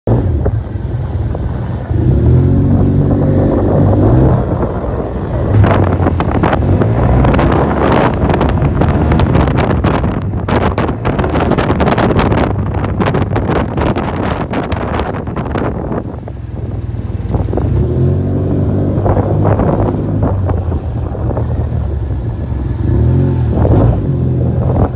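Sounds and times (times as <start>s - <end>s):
wind buffeting microphone: 0.1s - 24.9s.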